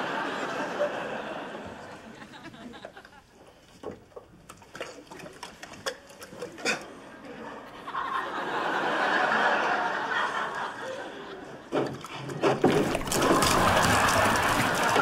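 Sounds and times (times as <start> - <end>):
audience laughing: 0.0 - 3.5, 6.9 - 11.8, 13.2 - 15.0
water splashing: 12.5 - 15.0.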